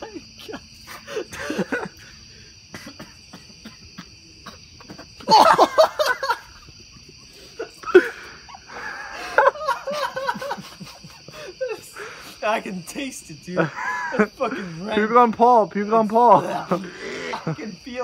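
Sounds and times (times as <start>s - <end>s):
crickets chirping: 0.0s - 18.0s
person coughing and gagging: 2.7s - 6.4s.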